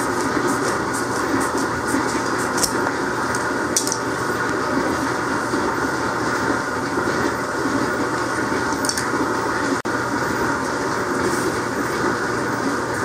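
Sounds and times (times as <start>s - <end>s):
machine rumble and rattle: 0.0s - 13.0s.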